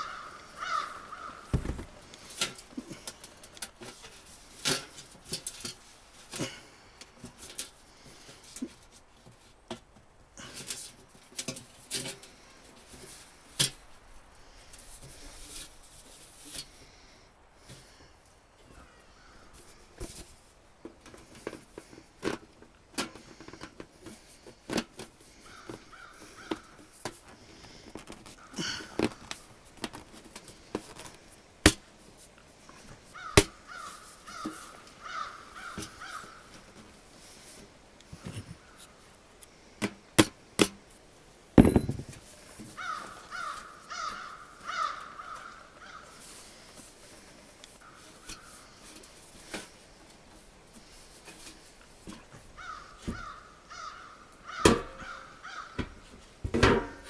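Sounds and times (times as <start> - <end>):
crow cawing: 0.0 - 1.5, 25.4 - 26.8, 33.2 - 36.5, 42.8 - 46.2, 52.6 - 55.8.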